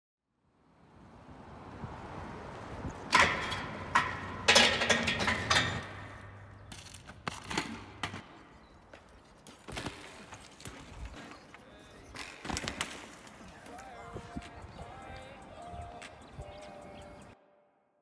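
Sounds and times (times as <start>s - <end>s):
bike crashing into metal handrail: 3.1s - 8.2s
sharp clanks and thuds: 3.1s - 8.3s.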